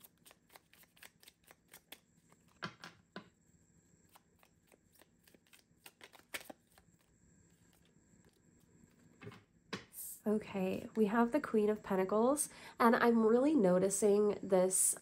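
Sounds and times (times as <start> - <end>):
cards being shuffled by hand: 0.0 - 2.9, 4.1 - 7.9.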